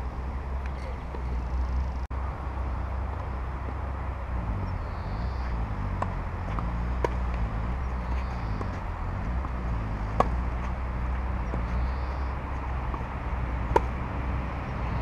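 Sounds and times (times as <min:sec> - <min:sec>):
steady low rumble: 0:00.0 - 0:15.0
tennis ball hit by racket: 0:05.9 - 0:11.8, 0:12.6 - 0:14.2.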